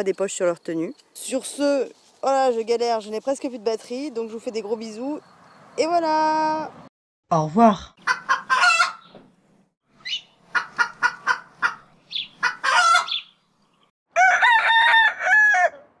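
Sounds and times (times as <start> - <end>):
fowl clucking: 8.0 - 9.1, 10.1 - 13.3
rooster crow: 14.1 - 16.0.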